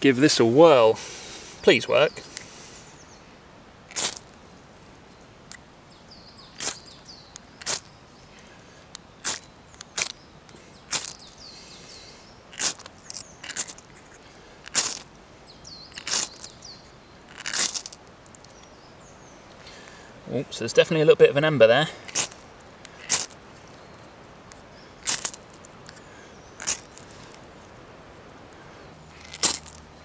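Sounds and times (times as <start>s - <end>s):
knife scraping ferro rod: 12.5s - 15.0s, 16.0s - 16.5s, 17.3s - 18.0s, 23.0s - 23.4s.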